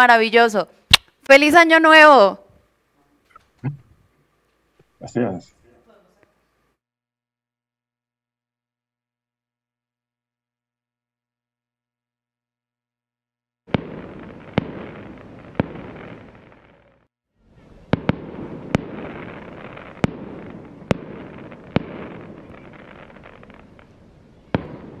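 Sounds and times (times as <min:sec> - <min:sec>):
fireworks bangs: 0:13.7 - 0:25.0
fireworks crackling: 0:13.7 - 0:25.0.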